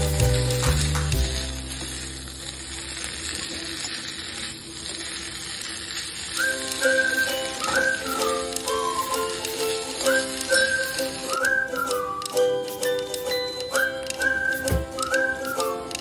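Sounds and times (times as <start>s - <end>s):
background music: 0.0s - 2.3s, 6.4s - 16.0s
vegetables sizzling in a pan: 0.0s - 16.0s.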